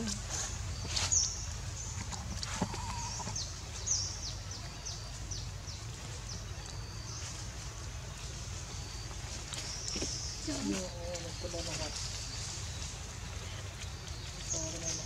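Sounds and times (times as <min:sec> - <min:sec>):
low outdoor rumble: 0:00.0 - 0:15.0
small birds chirping: 0:00.0 - 0:15.0.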